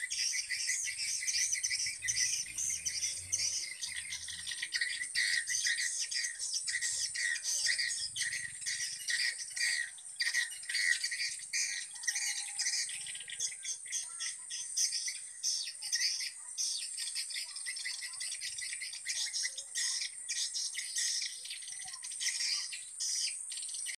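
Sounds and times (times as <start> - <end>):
birds twittering: 0.0 - 24.0.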